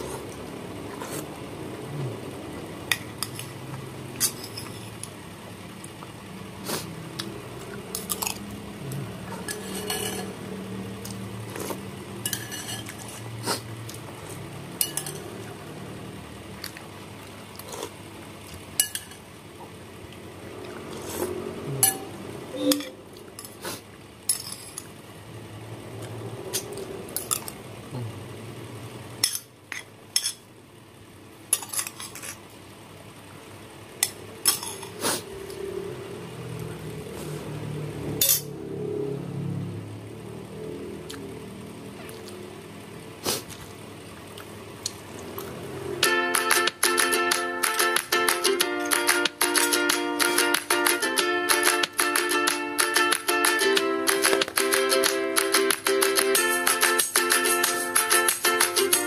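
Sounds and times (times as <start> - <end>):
metal spoon clinking on glass bowl: 14.8 - 15.2.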